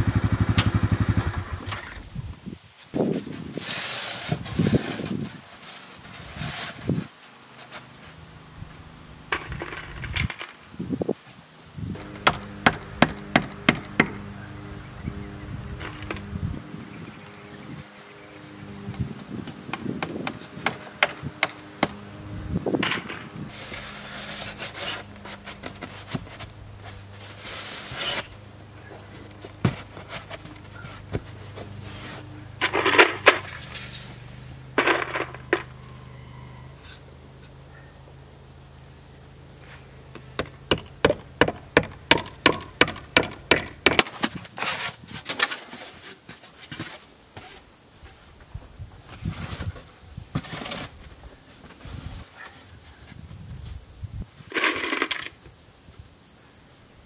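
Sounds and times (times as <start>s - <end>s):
swishing scrapes: 23.5s - 28.4s.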